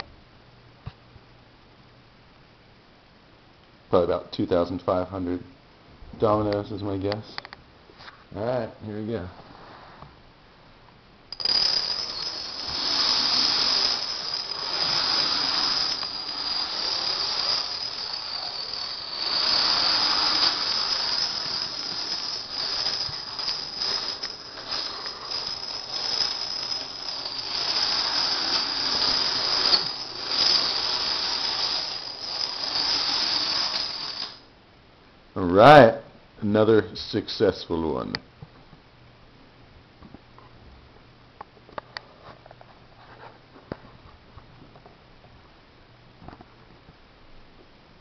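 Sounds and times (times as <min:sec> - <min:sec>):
dominoes toppling on wooden floor: 0:11.4 - 0:34.4.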